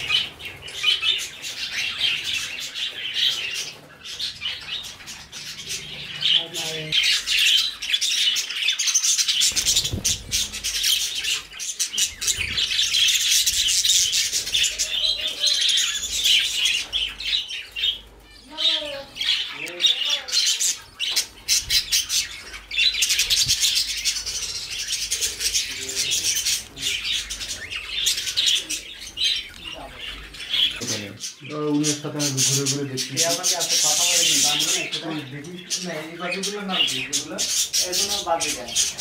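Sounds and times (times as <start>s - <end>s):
budgerigars chattering: 0.0s - 39.0s.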